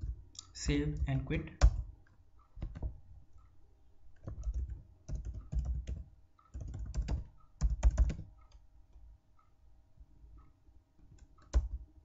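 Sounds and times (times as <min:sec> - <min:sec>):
typing on computer keyboard: 0:04.2 - 0:08.6.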